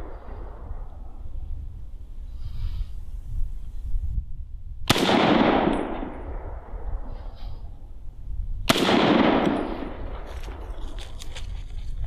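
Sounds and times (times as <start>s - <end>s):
rifle shots: 4.9s - 7.1s, 8.7s - 10.7s.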